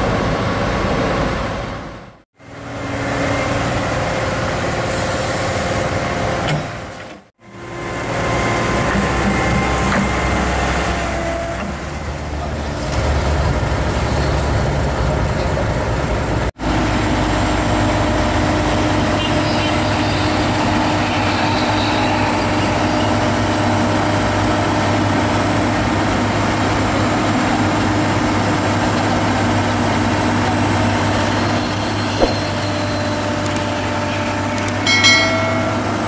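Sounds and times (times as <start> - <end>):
excavator diesel engine running: 0.0 - 13.9.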